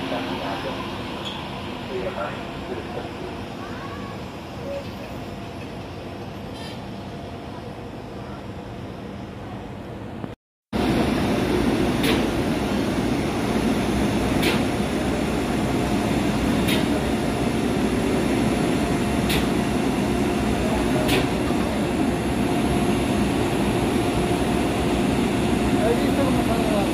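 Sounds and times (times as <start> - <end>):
electric locomotive equipment whirring: 10.8 - 26.9.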